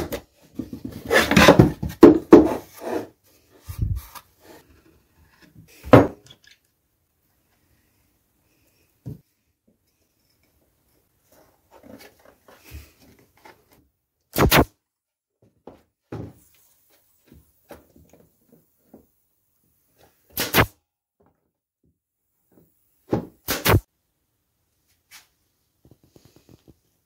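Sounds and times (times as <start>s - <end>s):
nail gun firing: 14.4s - 14.7s, 20.4s - 20.7s, 23.4s - 23.8s.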